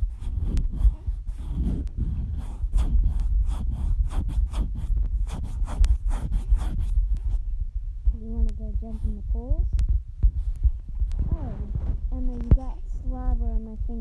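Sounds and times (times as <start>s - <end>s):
rubbing and scraping: 0.0s - 7.5s
low rumble: 0.0s - 14.0s.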